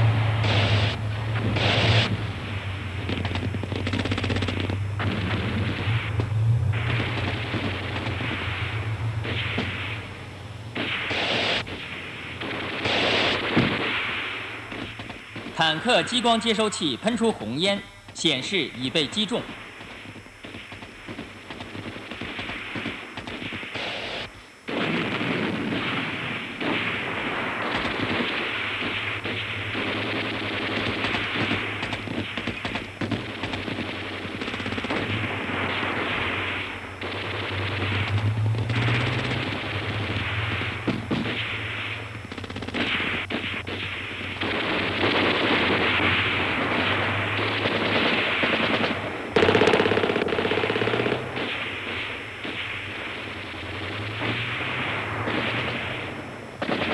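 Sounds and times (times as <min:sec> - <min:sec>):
low steady drone: 0:00.0 - 0:20.0, 0:33.9 - 0:56.8
machine guns firing: 0:00.0 - 0:56.9
single gunshots: 0:00.0 - 0:56.9.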